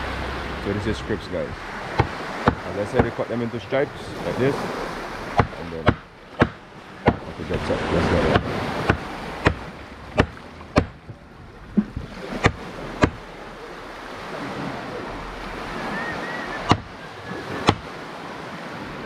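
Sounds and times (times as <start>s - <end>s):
surf washing on shore: 0.0s - 19.0s
knife chopping on wooden board: 1.9s - 3.1s, 5.4s - 7.3s, 8.2s - 11.1s, 11.8s - 13.2s, 16.7s - 16.9s, 17.6s - 17.9s.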